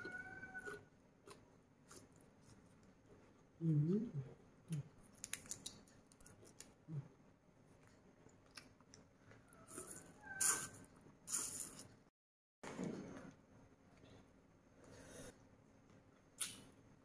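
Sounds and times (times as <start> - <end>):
prawn shell clicks and crackles: 5.1 - 6.7.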